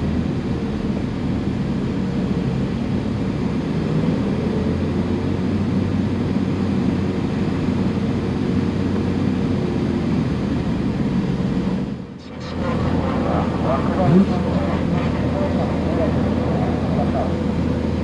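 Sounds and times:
car engine running steadily: 0.0s - 18.0s
road noise: 0.0s - 18.0s.

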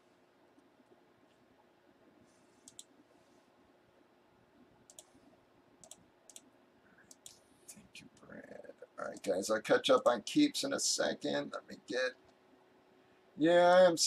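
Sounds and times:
computer mouse clicks: 2.6s - 3.0s, 4.9s - 5.2s, 5.8s - 7.4s.

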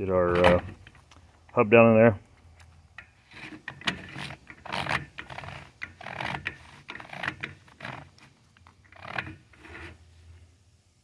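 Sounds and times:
metal parts rubbing and clicking: 3.0s - 10.0s.

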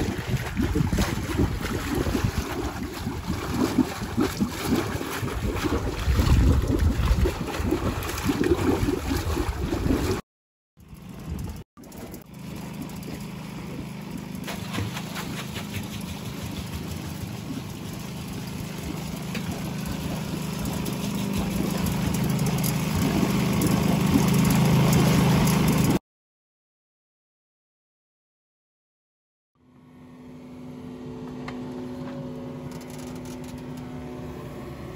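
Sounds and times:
water rushing through waterwheel: 0.0s - 10.2s, 11.8s - 26.0s
water splashing onto wheel buckets: 0.0s - 10.2s, 11.8s - 26.0s.

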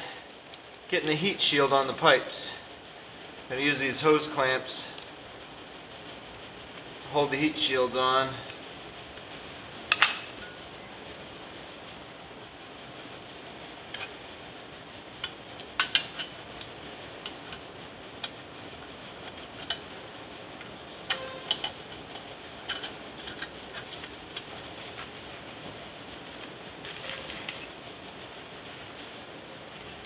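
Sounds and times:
steady low hiss: 0.0s - 30.0s
metallic clinks of clamps: 21.1s - 21.8s.

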